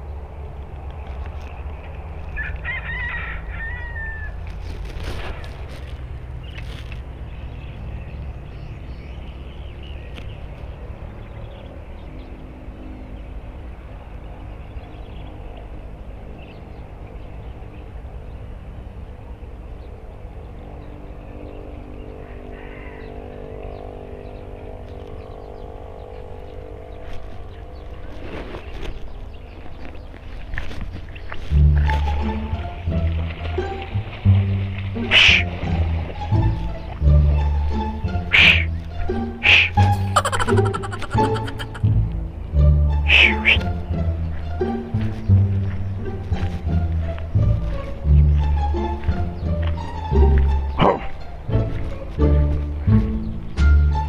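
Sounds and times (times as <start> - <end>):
wind rumbling on microphone: 24.4 - 39.9, 41.7 - 54.0
warbling bird call: 35.1 - 35.5, 38.3 - 38.8, 39.4 - 41.9, 43.1 - 43.7.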